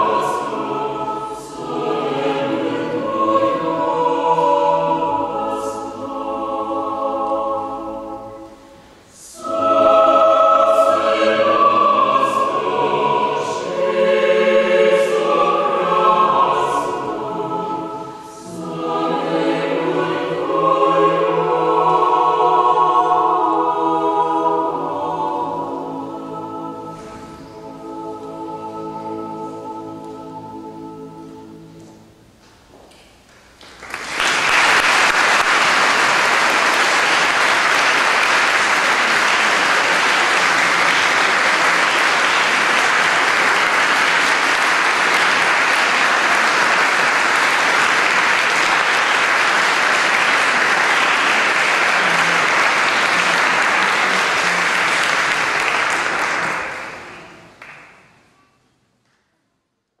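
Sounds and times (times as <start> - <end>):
audience applauding: 33.5 - 58.0.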